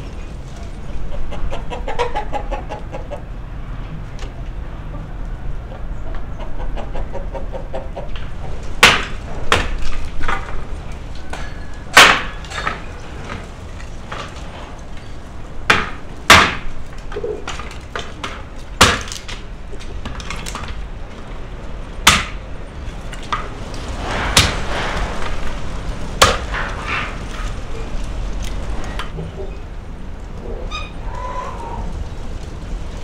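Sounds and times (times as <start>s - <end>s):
hatchet chopping wood: 8.8s - 10.5s, 11.9s - 13.4s, 15.7s - 19.4s, 22.0s - 22.4s, 24.4s - 24.6s, 26.2s - 26.7s.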